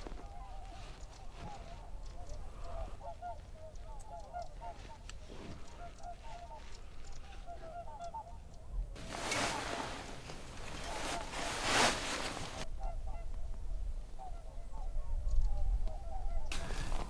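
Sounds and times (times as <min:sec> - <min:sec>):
geese honking: 0:00.0 - 0:13.3
cloth rustling: 0:09.0 - 0:12.6.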